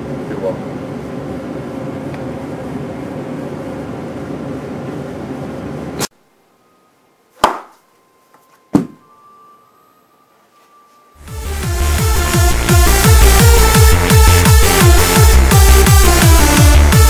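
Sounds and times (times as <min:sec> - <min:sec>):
steady background hum: 0:00.0 - 0:11.1
sharp thumps: 0:08.7 - 0:09.0.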